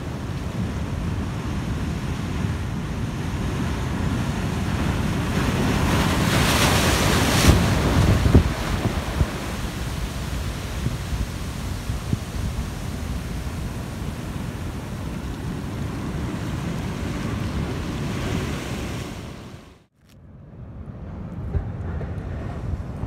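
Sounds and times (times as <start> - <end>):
wind buffeting microphone: 0.0 - 19.7, 20.4 - 23.0
wave crashing with hissing spray: 0.0 - 19.8
surf breaking over rocks: 3.7 - 19.7.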